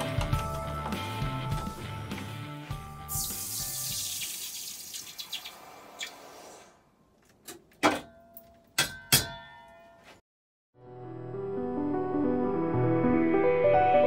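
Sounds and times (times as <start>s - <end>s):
hot metal hissing in water: 3.1s - 6.8s.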